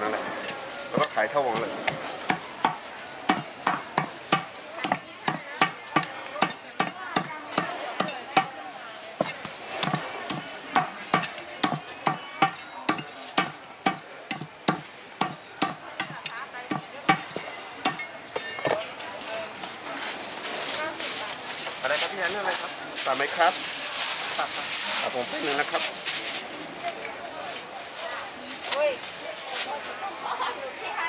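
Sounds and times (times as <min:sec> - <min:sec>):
cleaver chopping on wooden block: 0:01.0 - 0:08.5, 0:09.2 - 0:18.0.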